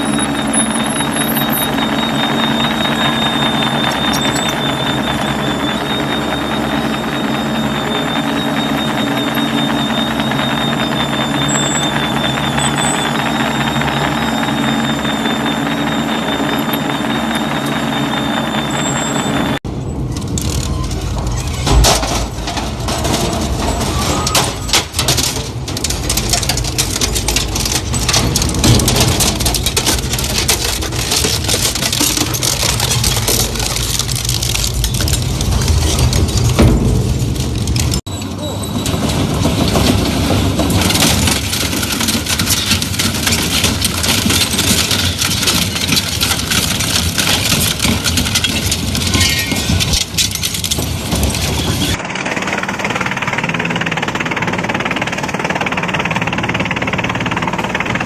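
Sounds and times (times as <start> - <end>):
shredder humming and whining: 0.0 - 19.6.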